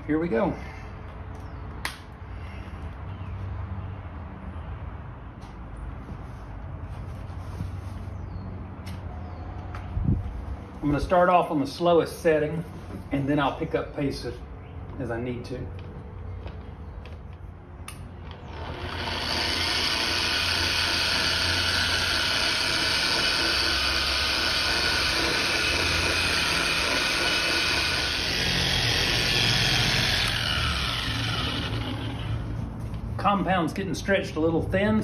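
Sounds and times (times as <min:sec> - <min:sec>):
polisher motor running: 0:18.3 - 0:32.5.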